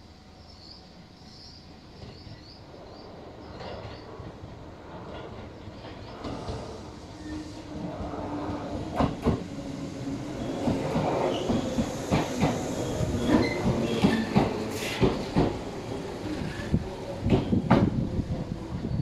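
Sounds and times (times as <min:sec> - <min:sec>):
train running rumble: 0:01.9 - 0:19.0
train wheels clacking over rail joints: 0:10.6 - 0:18.0.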